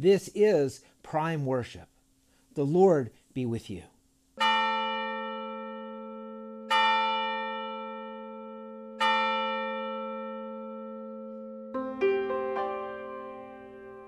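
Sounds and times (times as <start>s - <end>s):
church bell tolling: 4.4s - 14.0s.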